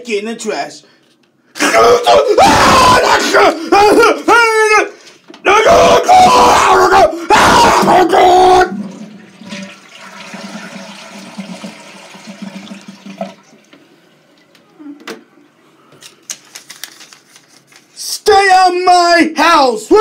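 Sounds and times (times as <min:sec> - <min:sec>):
toilet flushing: 0:08.0 - 0:14.6.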